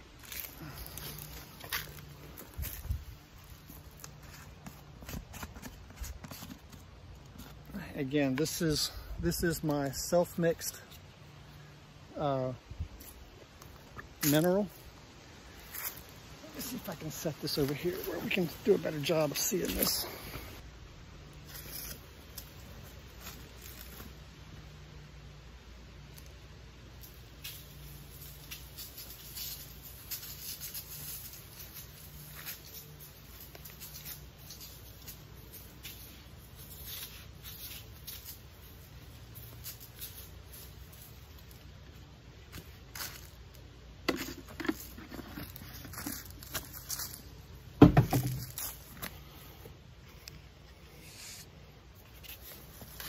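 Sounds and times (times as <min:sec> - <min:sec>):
footsteps: 0:00.2 - 0:10.0, 0:27.1 - 0:50.2
light knocks and rustles: 0:47.8 - 0:48.8.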